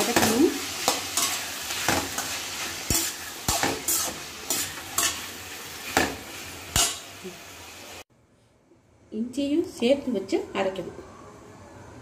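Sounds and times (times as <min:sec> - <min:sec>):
spatula scraping pan: 0:00.0 - 0:07.0
food sizzling in hot oil: 0:00.0 - 0:08.0.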